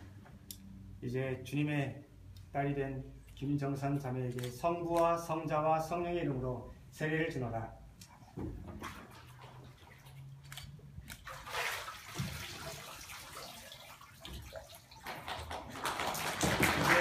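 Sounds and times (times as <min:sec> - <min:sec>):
water sloshing and splashing: 0:08.2 - 0:16.8.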